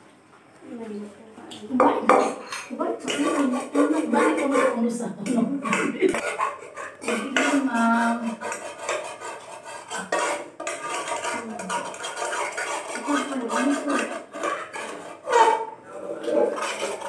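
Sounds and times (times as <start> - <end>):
pot clattering against utensils: 1.8 - 17.0
pot being scrubbed: 2.1 - 17.0.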